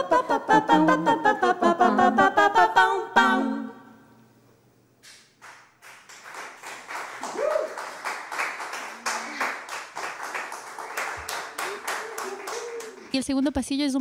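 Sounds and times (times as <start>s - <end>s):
people clapping: 5.0s - 13.2s.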